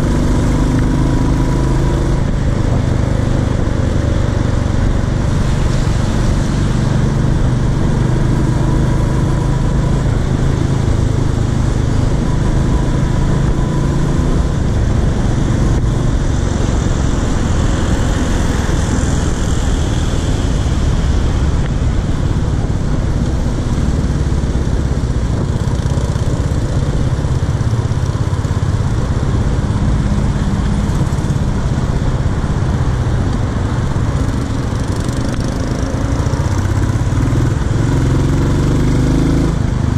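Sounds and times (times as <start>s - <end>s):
motorcycle engine running: 0.0s - 39.9s
wind rush of riding: 0.0s - 39.9s.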